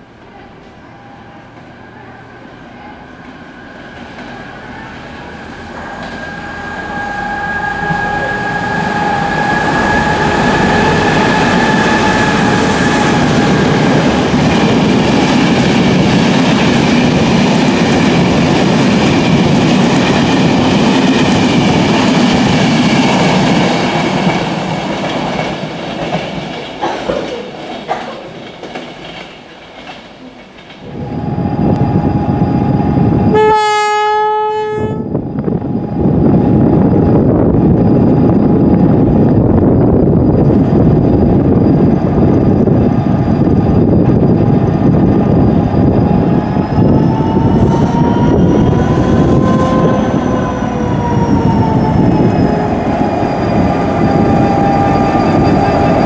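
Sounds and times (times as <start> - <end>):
train engine whine: 0.0 - 27.1, 30.2 - 56.0
locomotive steady tone: 0.0 - 28.0, 28.6 - 56.0
rush of train wheels: 2.5 - 33.5, 34.8 - 56.0
rail-joint clicks: 24.2 - 30.9.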